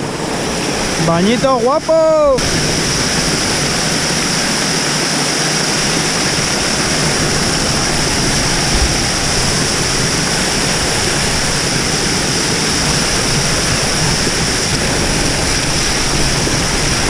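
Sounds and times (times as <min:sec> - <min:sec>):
waterfall rushing and splashing: 0:00.0 - 0:17.0
low thump: 0:08.6 - 0:09.5.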